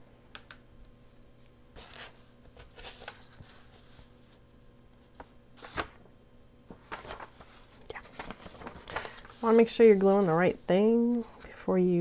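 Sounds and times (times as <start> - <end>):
paper rustling and rubbing: 1.8 - 4.4, 5.2 - 6.1, 6.7 - 11.7.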